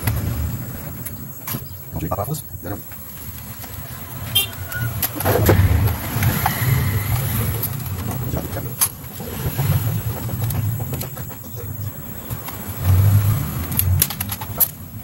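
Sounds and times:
low rumbling hum: 0:00.0 - 0:13.8
plastic clicks and scraping: 0:13.6 - 0:14.9.

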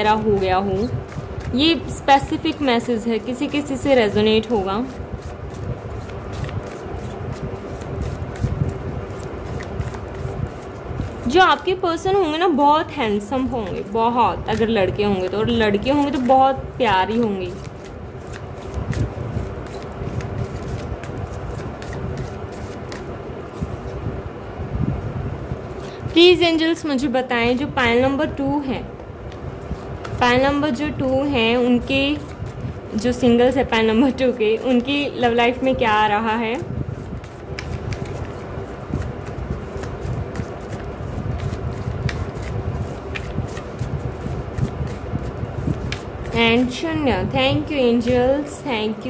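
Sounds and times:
cards being shuffled: 0:00.0 - 0:11.7, 0:13.1 - 0:24.0, 0:29.2 - 0:35.9, 0:36.9 - 0:46.8.

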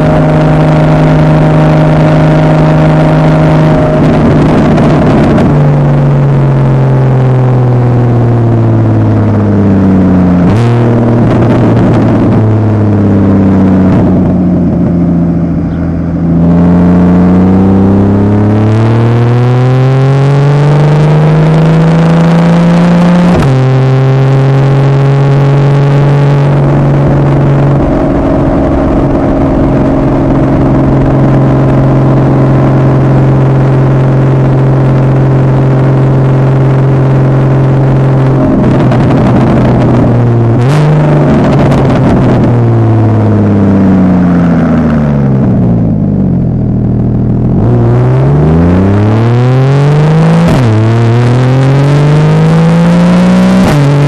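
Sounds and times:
sports car engine revving: 0:00.0 - 0:54.0.

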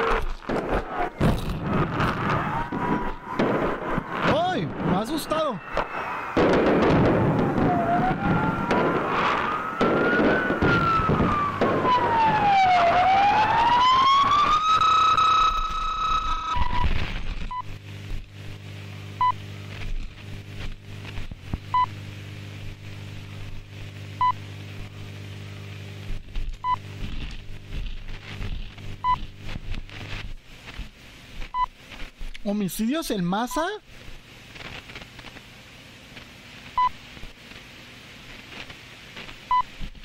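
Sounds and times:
siren wailing: 0:00.0 - 0:16.9
electrical hum: 0:00.0 - 0:40.0
firework bangs: 0:00.1 - 0:15.5.

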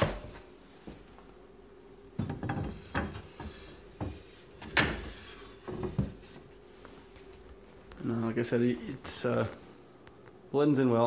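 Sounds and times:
cutting board scraping and knocking: 0:02.2 - 0:06.4.

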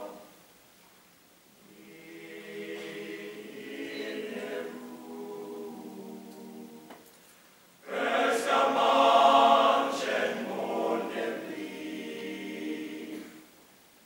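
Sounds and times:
boys' choir singing: 0:01.6 - 0:07.0, 0:07.8 - 0:13.6.

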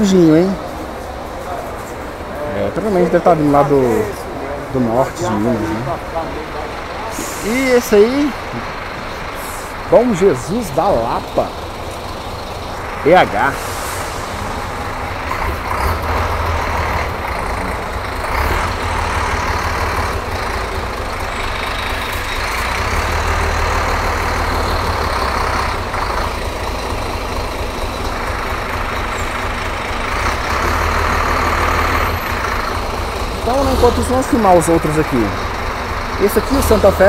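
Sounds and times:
diesel engine idling: 0:00.0 - 0:37.0
rushing noise: 0:12.7 - 0:20.8.

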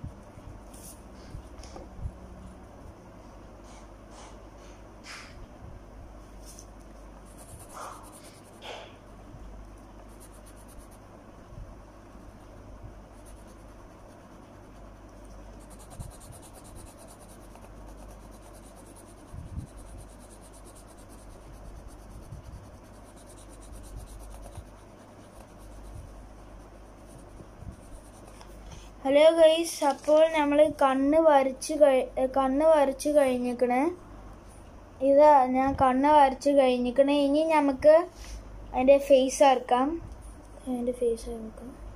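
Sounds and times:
pencil scratching on paper: 0:07.3 - 0:09.1, 0:10.0 - 0:11.0, 0:12.1 - 0:28.6.

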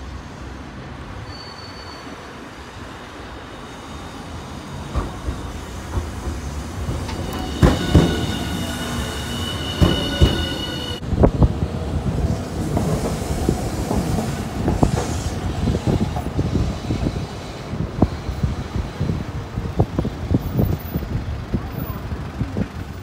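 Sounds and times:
high wheel squeal: 0:01.1 - 0:02.7, 0:03.5 - 0:11.0
tram rumbling over points: 0:02.8 - 0:23.0
tram wheels knocking over rail joints: 0:04.7 - 0:11.0.

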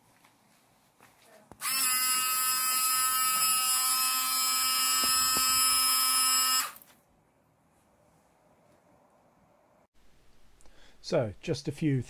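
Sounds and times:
electric water pump whining: 0:01.6 - 0:06.8.

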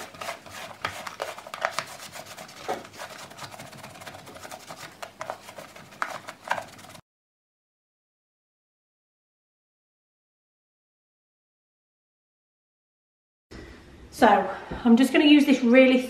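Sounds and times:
cloth wiping plastic: 0:00.0 - 0:07.0.

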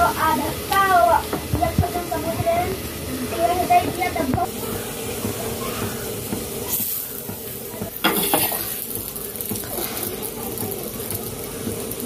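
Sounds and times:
cooking hiss: 0:00.0 - 0:12.0
metal spatula scraping a griddle: 0:08.1 - 0:08.9, 0:09.6 - 0:10.2.

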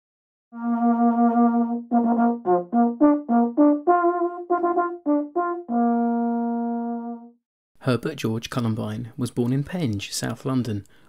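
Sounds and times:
solo bugle: 0:00.6 - 0:07.3.

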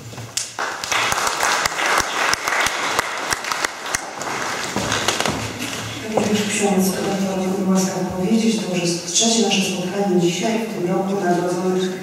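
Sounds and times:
audience applauding: 0:00.4 - 0:05.8.

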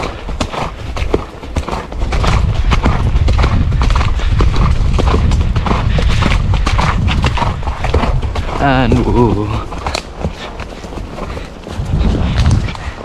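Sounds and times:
horse hooves on dirt trail: 0:00.0 - 0:13.0
low rumble: 0:11.4 - 0:13.0.

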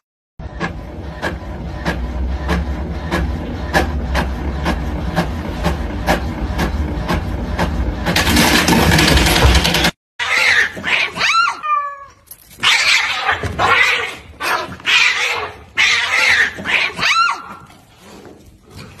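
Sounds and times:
printer mechanism running: 0:00.4 - 0:10.0
cats yowling: 0:10.2 - 0:17.7
cats hissing: 0:12.6 - 0:18.2.

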